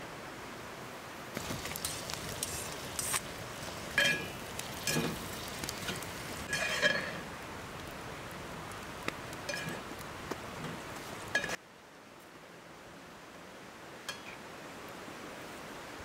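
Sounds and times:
metal spatula scraping pan: 0:01.7 - 0:07.2.

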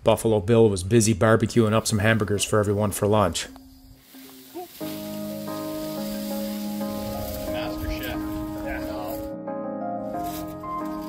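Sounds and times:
background music with held notes: 0:01.8 - 0:11.0
patties sizzling on grill: 0:03.9 - 0:09.0.

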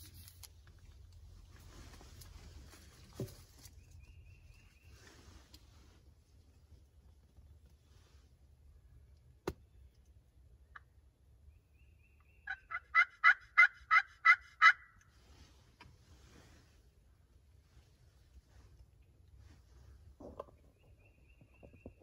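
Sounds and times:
turkey yelping: 0:12.3 - 0:15.0.

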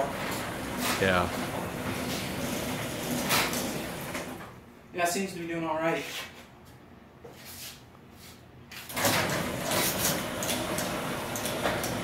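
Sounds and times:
garage door opener rumble: 0:00.0 - 0:04.6, 0:08.9 - 0:12.0.

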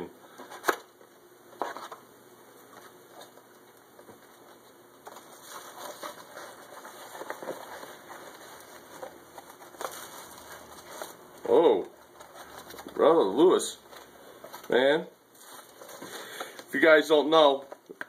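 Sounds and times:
cardboard packaging rustling: 0:02.6 - 0:17.0.

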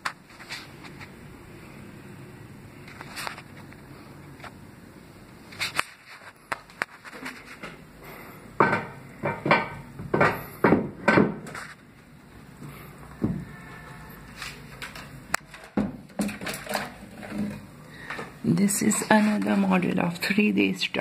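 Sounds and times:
sharp knocks: 0:08.6 - 0:11.5.

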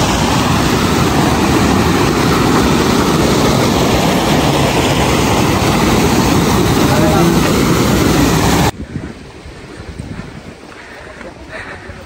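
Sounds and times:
stream rushing over rocks: 0:00.0 - 0:08.7.

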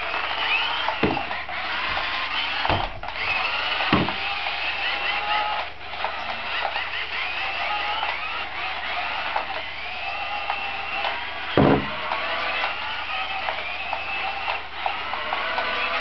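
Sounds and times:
toy car electric motors whining: 0:00.0 - 0:16.0
dull thumps: 0:01.0 - 0:01.3, 0:11.6 - 0:12.0.

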